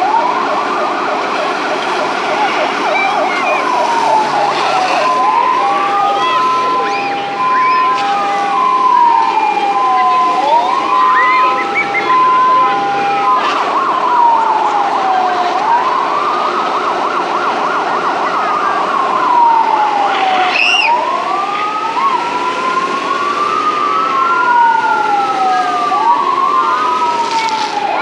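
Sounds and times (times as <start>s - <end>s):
fast warble siren tone: 0.0s - 22.2s
fire engine sirens wailing: 0.0s - 28.0s.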